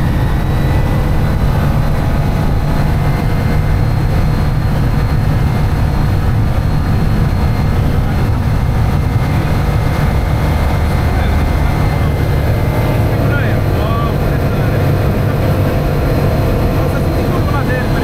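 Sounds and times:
propeller aircraft engine droning: 0:00.0 - 0:18.0.

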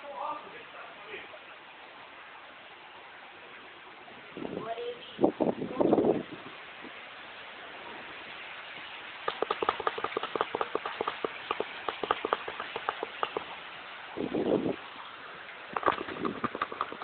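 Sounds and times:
heavy rain hissing: 0:00.0 - 0:17.0
raindrops tapping near microphone: 0:04.2 - 0:17.0.

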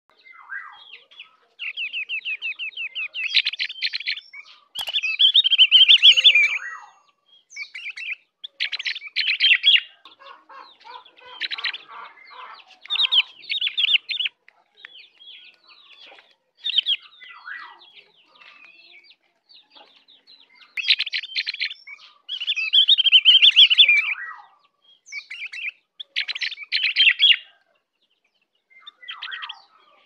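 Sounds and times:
bird singing high trills: 0:01.6 - 0:09.9, 0:20.7 - 0:24.4.

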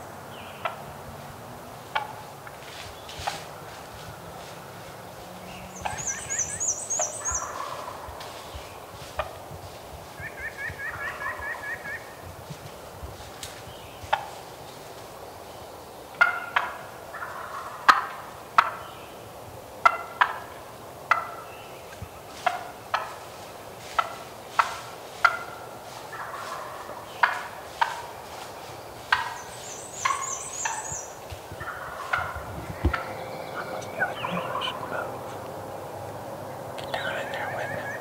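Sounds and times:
turkeys gobbling: 0:00.6 - 0:00.8, 0:01.8 - 0:02.6, 0:05.8 - 0:08.4, 0:10.1 - 0:12.2, 0:16.2 - 0:18.8, 0:19.8 - 0:21.5, 0:22.3 - 0:38.0.

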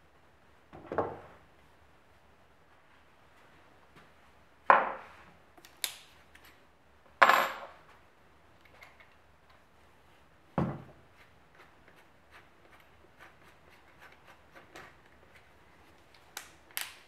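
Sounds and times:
tools knocking on wooden workbench: 0:10.6 - 0:10.9.

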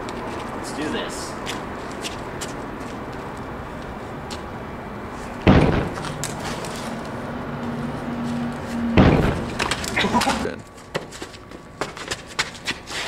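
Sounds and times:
loud thump: 0:05.4 - 0:06.1, 0:08.9 - 0:09.8.

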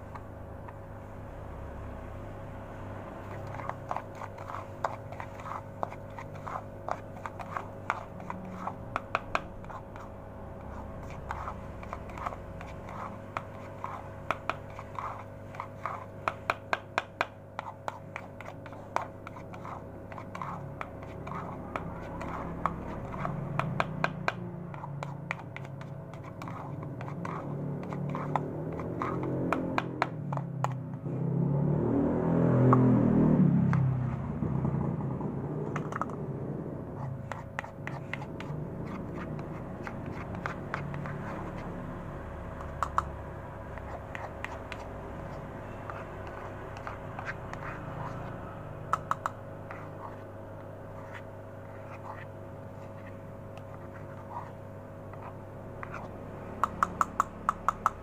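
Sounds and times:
faint steady hum: 0:00.0 - 0:31.5, 0:32.5 - 0:58.0
spoon scraping pellets in bowl: 0:03.2 - 0:30.8, 0:37.0 - 0:42.0, 0:43.7 - 0:50.3, 0:50.9 - 0:58.0.

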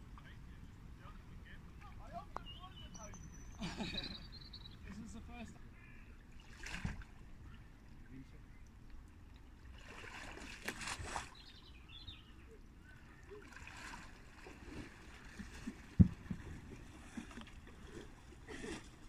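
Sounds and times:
water splashing and sloshing: 0:04.9 - 0:19.0.

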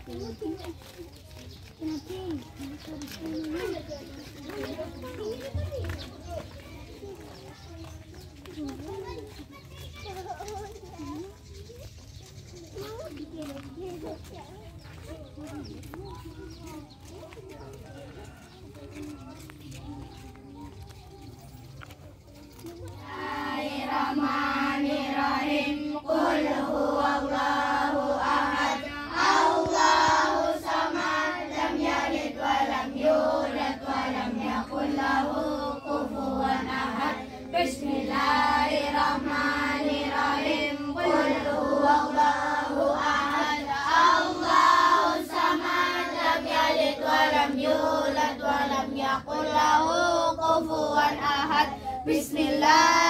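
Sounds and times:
children chanting in unison: 0:23.0 - 0:53.0.

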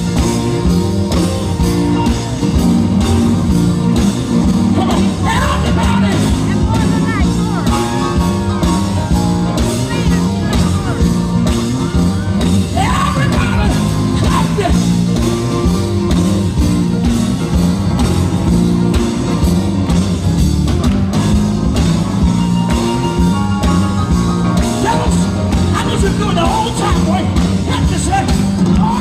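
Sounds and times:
drum kit: 0:00.0 - 0:29.0
electric guitar: 0:00.0 - 0:29.0
gospel band playing: 0:00.0 - 0:29.0
lead singer singing: 0:04.8 - 0:07.7, 0:12.7 - 0:14.9.

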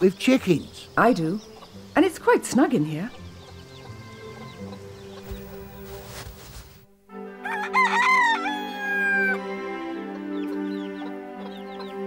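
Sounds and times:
background music with held notes: 0:00.0 - 0:12.0
rooster crowing: 0:07.4 - 0:09.5.

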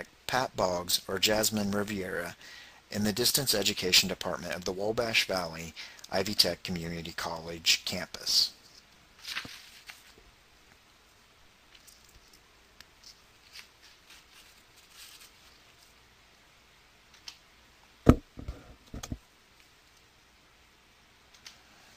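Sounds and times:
sharp thump: 0:18.1 - 0:19.2.

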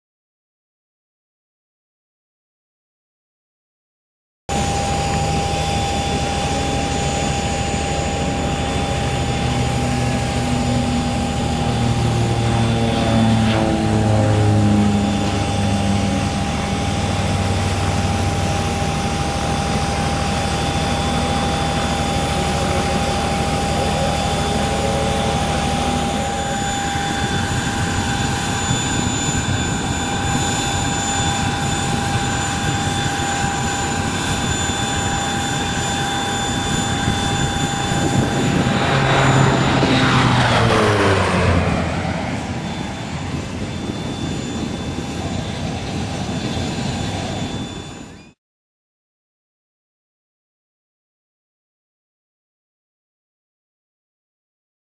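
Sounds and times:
plane passing low: 0:04.5 - 0:48.4
turboprop engines whining: 0:04.5 - 0:48.4.

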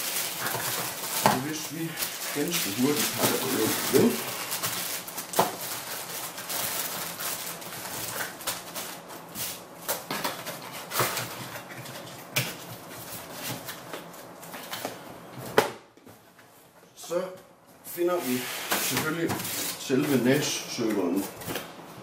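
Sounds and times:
plastic bags rustling: 0:00.0 - 0:14.8.

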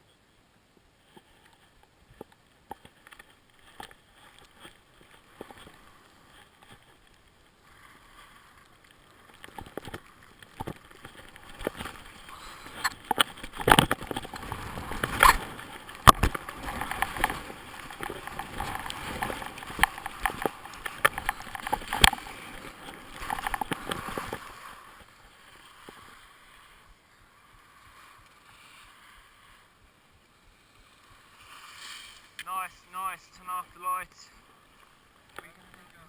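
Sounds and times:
skis hissing over snow: 0:30.4 - 0:32.9.

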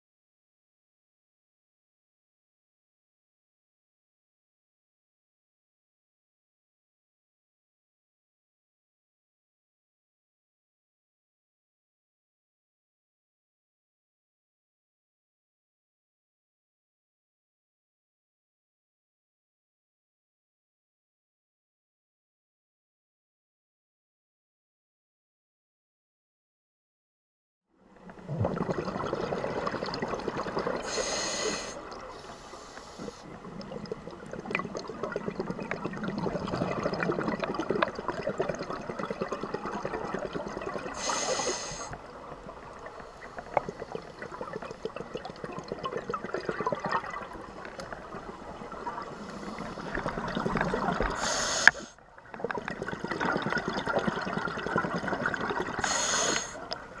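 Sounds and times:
exhaled air bubbling underwater: 0:27.9 - 0:57.0
regulator inhale hiss: 0:30.8 - 0:33.3, 0:41.0 - 0:42.0, 0:49.2 - 0:50.0, 0:51.0 - 0:52.0, 0:55.8 - 0:56.7.

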